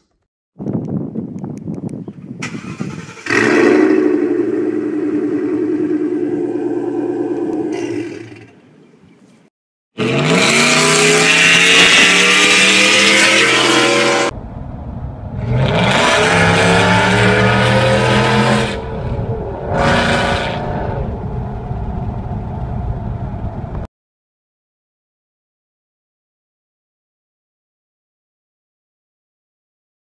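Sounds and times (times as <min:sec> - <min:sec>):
engine revving hard: 0:02.6 - 0:08.2, 0:10.0 - 0:14.3, 0:15.3 - 0:21.2.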